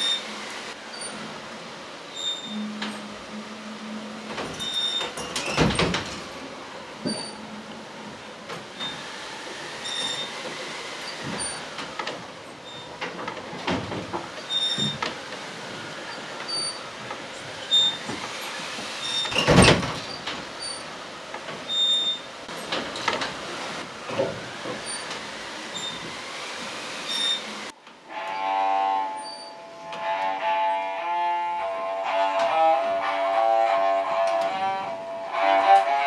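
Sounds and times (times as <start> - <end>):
creaking and squealing: 0.0 - 1.3, 2.1 - 6.4, 7.0 - 36.0
high squeaks: 2.2 - 3.1, 4.5 - 6.0, 7.0 - 7.6, 9.8 - 10.4, 14.4 - 15.1, 16.1 - 20.9, 21.7 - 22.7, 27.1 - 36.0.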